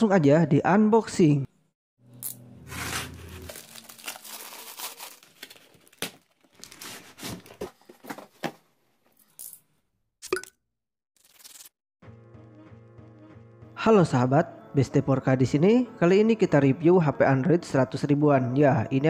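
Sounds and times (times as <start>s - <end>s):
packaging tearing open: 2.7s - 7.6s, 11.2s - 11.7s
plastic and paper crinkling: 2.7s - 8.6s.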